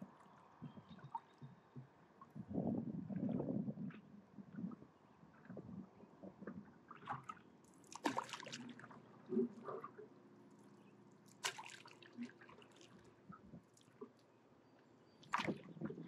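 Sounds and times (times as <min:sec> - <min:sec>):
paddle splashing in water: 0:06.9 - 0:10.1, 0:11.3 - 0:13.1, 0:15.2 - 0:16.0
water dripping from paddle: 0:06.9 - 0:14.3.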